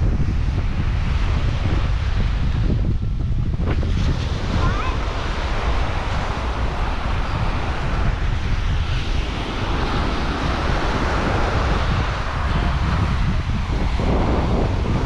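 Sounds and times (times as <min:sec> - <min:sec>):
wind buffeting the microphone: 0:00.0 - 0:15.0
ocean surf hissing: 0:03.6 - 0:15.0.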